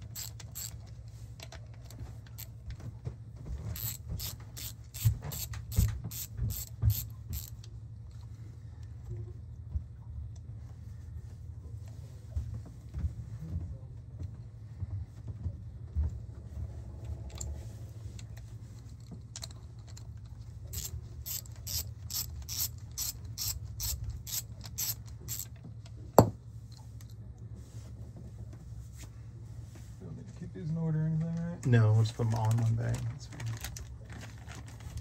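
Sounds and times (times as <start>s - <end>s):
hand ratchet clicking: 0.0s - 0.8s, 3.8s - 7.5s, 20.7s - 25.5s
steady low hum: 0.0s - 35.0s.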